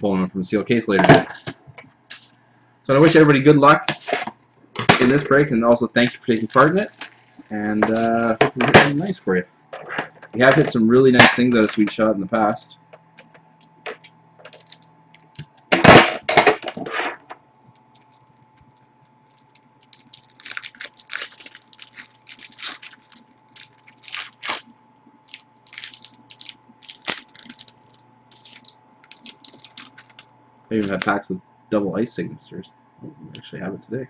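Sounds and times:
wrapper tearing and crinkling: 6.2s - 8.4s, 14.4s - 15.4s, 17.8s - 30.2s, 30.8s - 31.2s.

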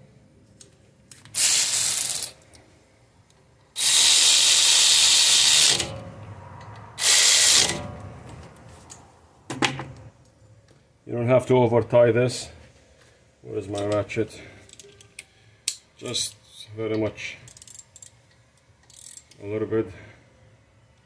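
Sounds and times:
power ratchet running: 1.4s - 2.4s, 3.8s - 6.0s, 7.0s - 7.8s.

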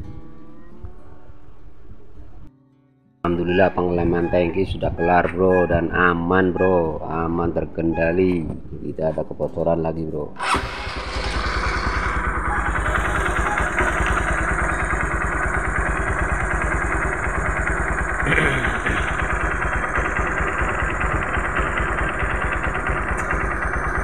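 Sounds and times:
motorcycle engine idling: 10.4s - 24.0s.

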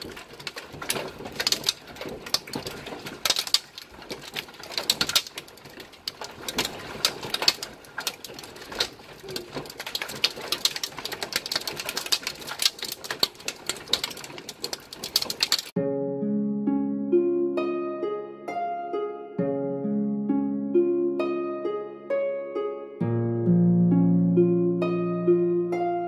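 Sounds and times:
hailstones pelting hard surfaces: 0.0s - 15.8s.

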